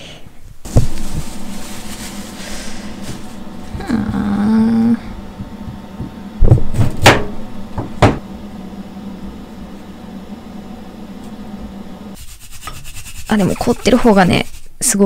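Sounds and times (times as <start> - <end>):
knife scraping ginger: 12.2 - 14.8.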